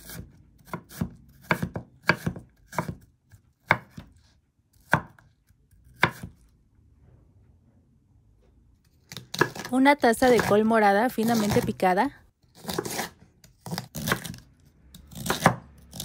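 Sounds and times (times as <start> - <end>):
knife slicing on wooden board: 5.9 - 6.4, 12.5 - 14.4.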